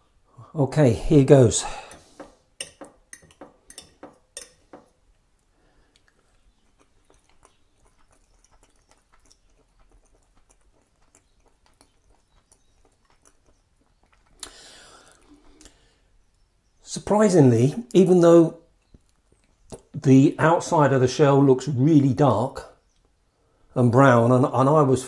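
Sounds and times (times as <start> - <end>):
faint chewing: 1.8 - 16.5, 18.7 - 20.0.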